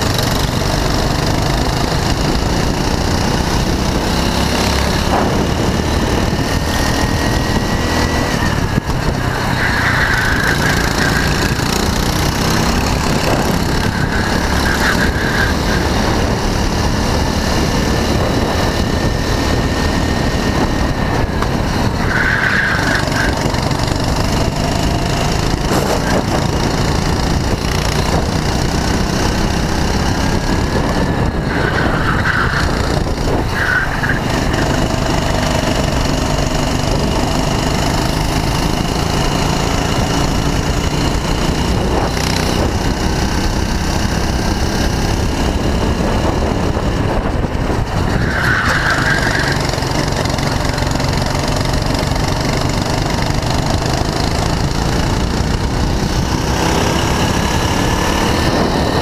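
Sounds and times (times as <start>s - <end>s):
go-kart engine racing: 0.0s - 59.0s
heavy low rumble: 4.8s - 22.0s.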